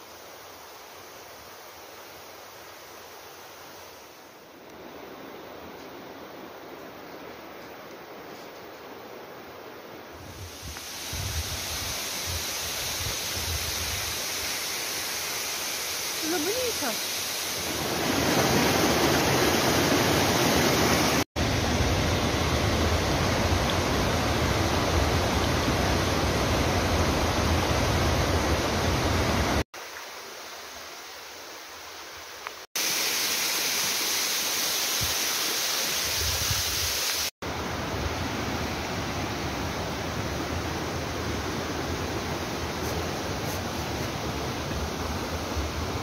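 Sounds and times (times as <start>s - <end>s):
waterfall rushing: 10.2s - 29.9s.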